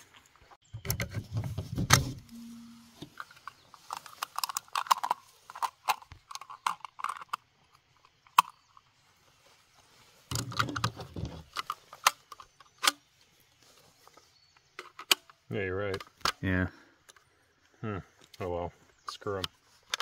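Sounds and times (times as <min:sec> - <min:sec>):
rustle: 0:00.0 - 0:16.6
shotgun being handled: 0:03.0 - 0:07.4, 0:14.8 - 0:16.4, 0:19.3 - 0:20.0.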